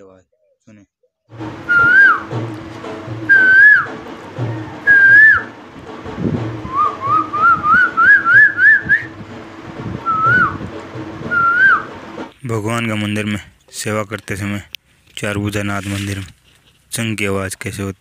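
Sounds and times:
man whistling bird call: 0:01.7 - 0:02.3, 0:03.3 - 0:03.9, 0:04.6 - 0:05.5, 0:06.7 - 0:09.1, 0:10.1 - 0:10.6, 0:11.3 - 0:11.9.

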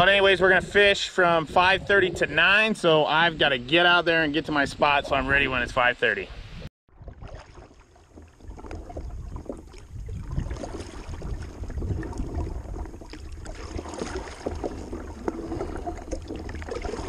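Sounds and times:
wind rumble on microphone: 0:00.0 - 0:07.4, 0:08.1 - 0:17.0
paddle strokes splashing water: 0:06.9 - 0:17.0.

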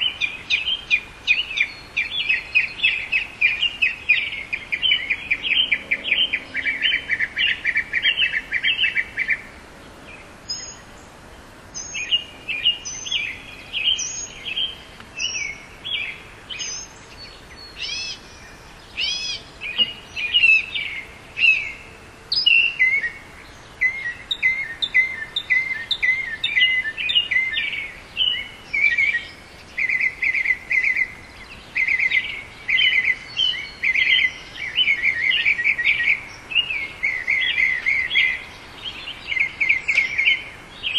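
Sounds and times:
mockingbird singing: 0:00.0 - 0:11.1, 0:11.7 - 0:40.9.

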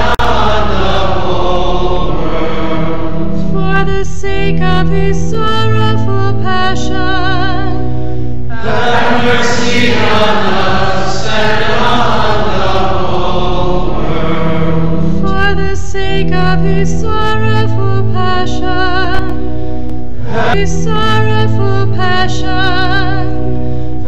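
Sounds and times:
voices singing slow chant: 0:00.0 - 0:05.1, 0:08.5 - 0:18.4, 0:20.2 - 0:22.2.

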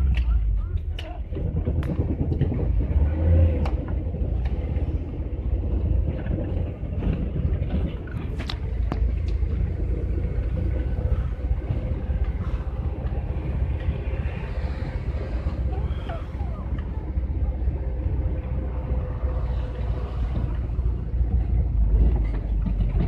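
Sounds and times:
van cab road rumble: 0:00.0 - 0:23.0
knocks and rattles: 0:01.0 - 0:14.0, 0:20.3 - 0:23.0.

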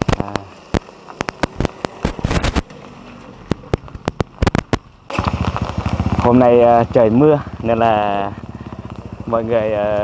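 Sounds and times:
firecrackers banging: 0:03.5 - 0:07.6.

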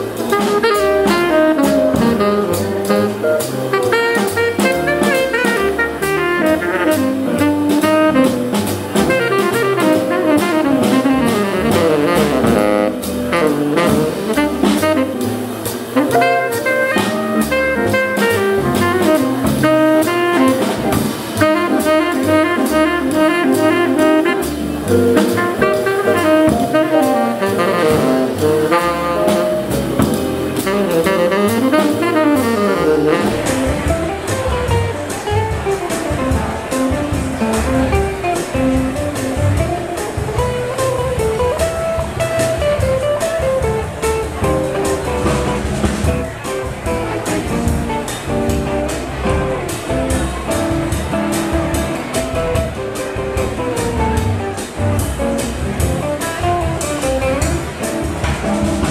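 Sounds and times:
tenor saxophone lead: 0:00.0 - 0:34.8
drum kit: 0:00.0 - 0:58.9
upright bass: 0:00.0 - 0:58.9.

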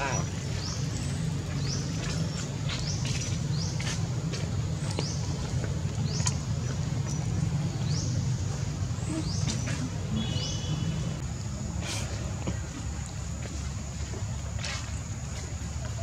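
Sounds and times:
bird chirping: 0:00.0 - 0:11.2.

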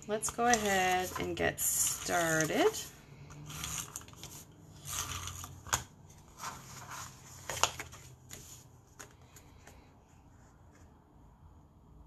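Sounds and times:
paper rustling: 0:00.4 - 0:09.9.

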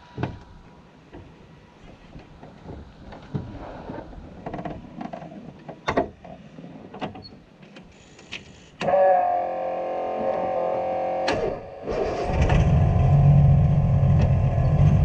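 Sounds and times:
loud ringing whir: 0:08.9 - 0:15.0.

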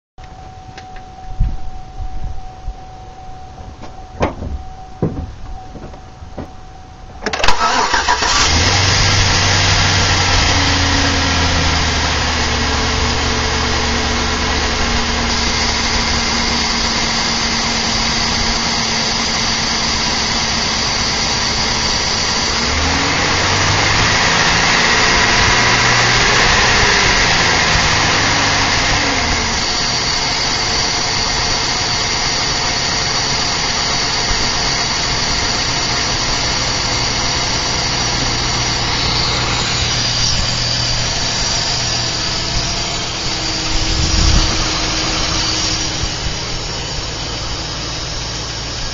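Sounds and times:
truck engine starting and idling: 0:03.5 - 0:48.9.

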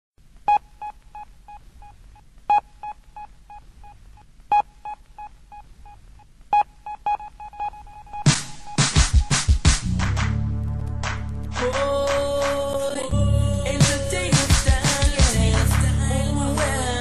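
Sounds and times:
dancehall beat: 0:08.2 - 0:17.0.

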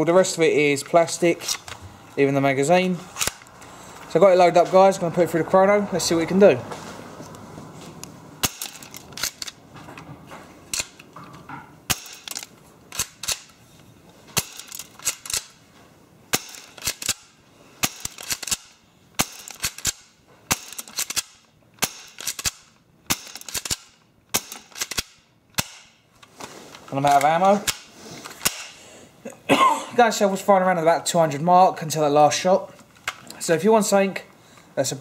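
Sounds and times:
airsoft pistol snapping shots: 0:11.9 - 0:12.4, 0:17.8 - 0:25.9.

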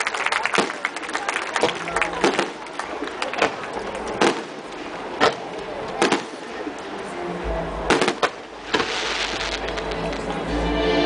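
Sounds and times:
firework crackling: 0:01.7 - 0:06.5, 0:07.9 - 0:10.4.

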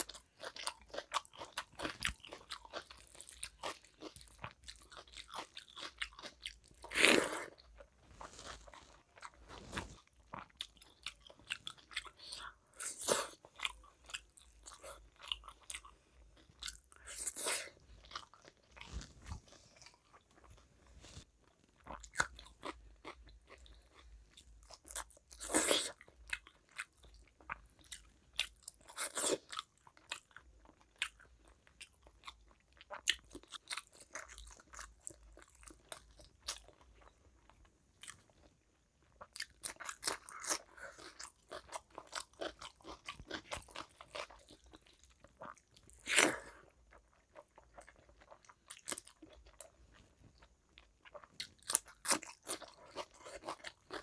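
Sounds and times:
person chewing food: 0:00.0 - 0:54.0.

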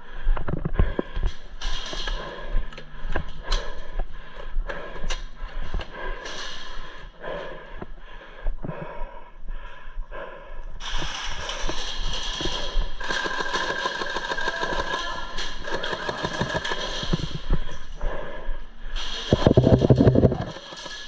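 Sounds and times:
person breathing: 0:00.0 - 0:21.0
sharp clicks and knocks: 0:10.9 - 0:17.7, 0:19.3 - 0:21.0
movement noises: 0:15.3 - 0:21.0.

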